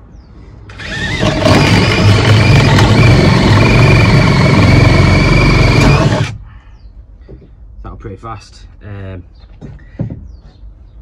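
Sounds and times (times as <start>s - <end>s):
drill motor whine: 0.7s - 6.4s
hole saw grinding wood: 0.7s - 6.4s.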